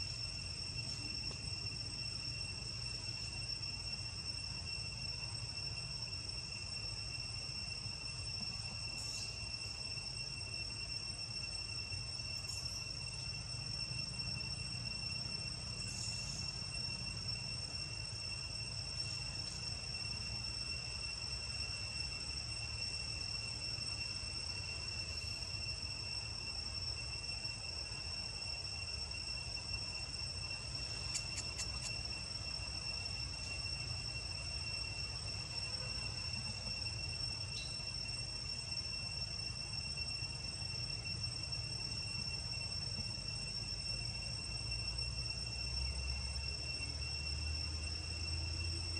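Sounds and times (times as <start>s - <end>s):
forest insects droning: 0.0s - 48.9s
faint ticks: 30.9s - 32.0s.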